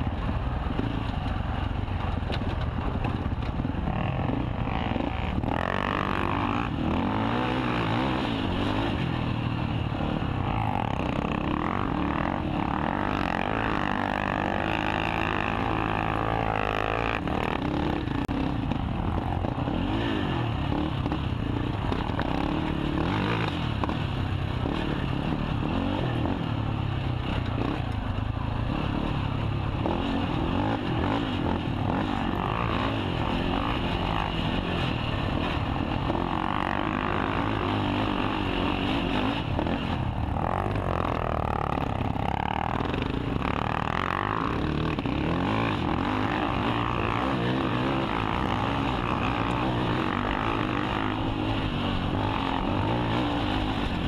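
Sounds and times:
quad engine revving: 3.7 - 28.0, 28.6 - 54.0.

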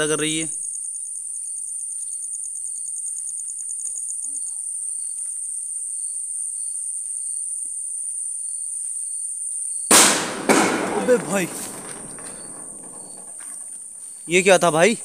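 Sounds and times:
crickets high-pitched trill: 0.0 - 10.0
short cricket chirps: 0.0 - 10.0
rapidly pulsing cricket trill: 0.0 - 15.0.

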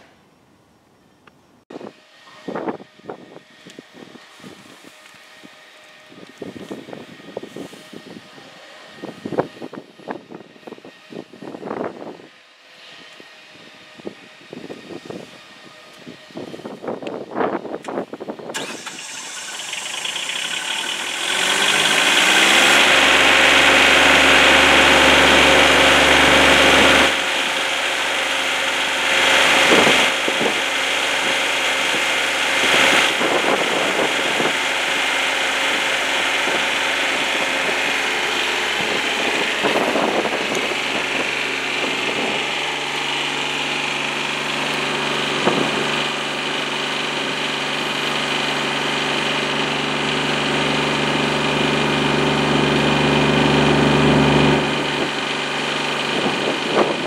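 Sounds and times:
diesel engine running: 13.3 - 57.0.

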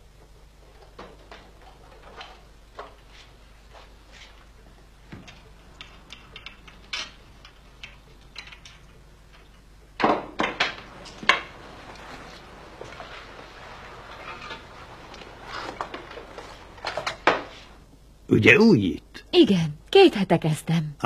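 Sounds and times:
faint footsteps: 2.5 - 9.8, 10.7 - 18.0.

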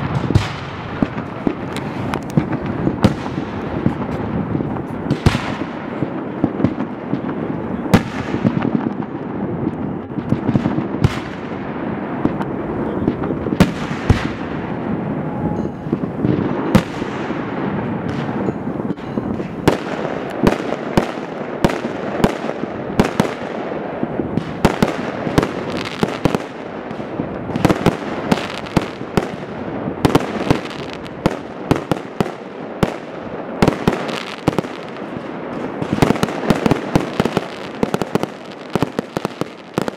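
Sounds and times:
continuous background noise: 0.0 - 39.9
fireworks bangs: 0.0 - 39.9.

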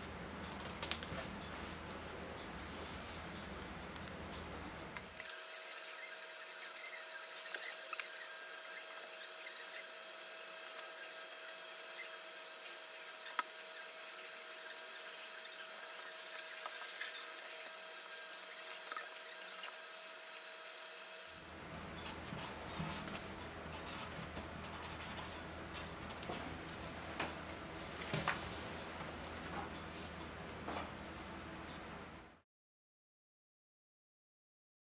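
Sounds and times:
faint steady hum: 0.0 - 32.4
marker scratching on paper: 5.6 - 17.6, 22.0 - 26.2.

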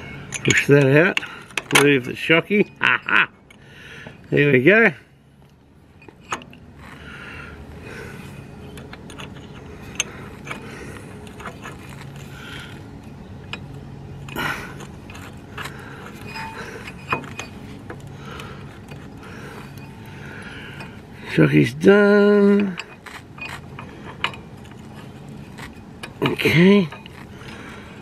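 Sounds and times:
metallic clicks of nut and bolt: 0.0 - 3.6, 6.0 - 7.0, 8.6 - 12.2, 13.4 - 19.9, 22.4 - 27.6.

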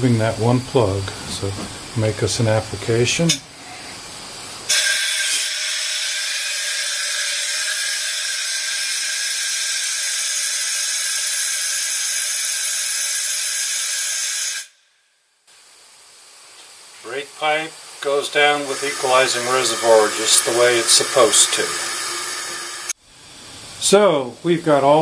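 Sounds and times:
compressed air hissing from brake valve: 17.8 - 23.8.

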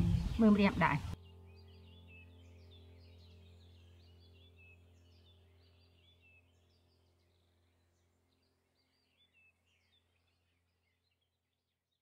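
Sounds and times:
low steady hum: 0.0 - 11.2
faint birds chirping: 0.0 - 12.0.

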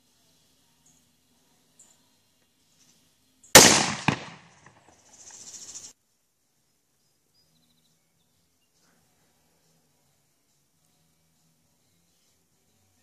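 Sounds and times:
sharp crack: 3.6 - 5.3.

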